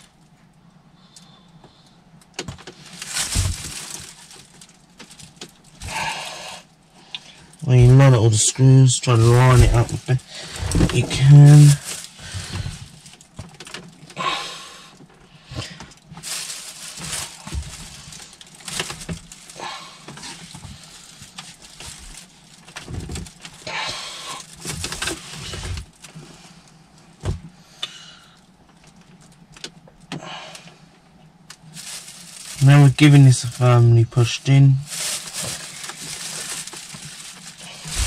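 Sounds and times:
plastic panel scraping and rattling: 0:09.2 - 0:14.0.

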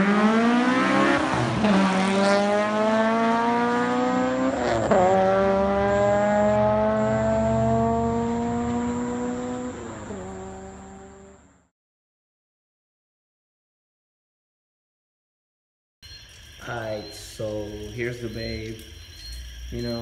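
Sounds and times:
car engine accelerating through gears: 0:00.0 - 0:11.6.

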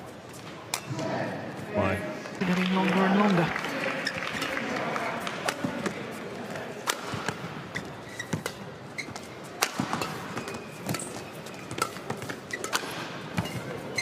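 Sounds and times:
shoes squeaking on court: 0:03.9 - 0:14.0
racket hitting shuttlecock: 0:04.4 - 0:06.0, 0:06.7 - 0:14.0.

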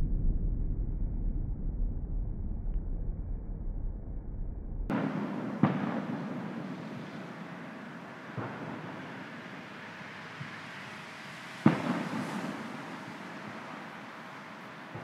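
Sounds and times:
firework shells bursting: 0:04.9 - 0:15.0.

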